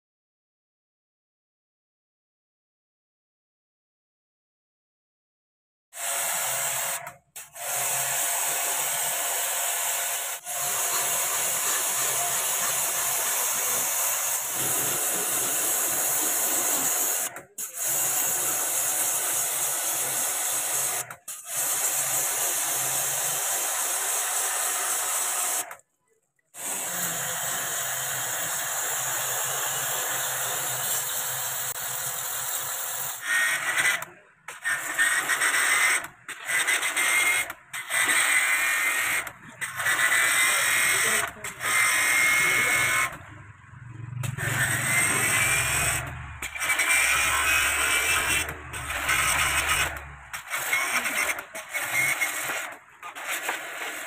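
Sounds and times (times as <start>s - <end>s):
pressure washer spraying water: 10.6s - 20.2s.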